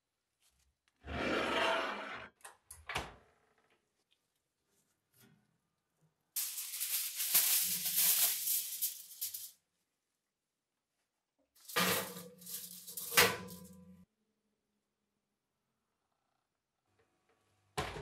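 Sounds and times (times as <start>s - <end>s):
aluminium foil crinkling: 6.4s - 9.6s, 11.6s - 13.8s.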